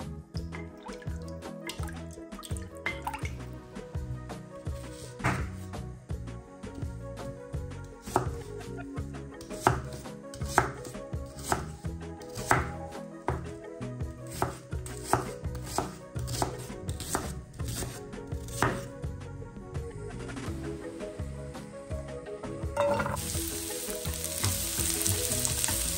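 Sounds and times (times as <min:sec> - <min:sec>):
knife slicing onion: 0:04.8 - 0:05.6, 0:07.9 - 0:08.5, 0:09.4 - 0:13.5, 0:14.2 - 0:18.9
knife knocking on wooden board: 0:05.2 - 0:05.6.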